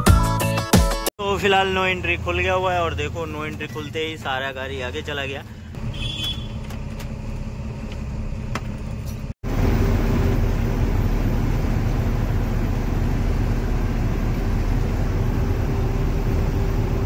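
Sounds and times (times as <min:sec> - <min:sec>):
truck engine running: 0:01.3 - 0:17.0
truck driving drone: 0:05.6 - 0:17.0.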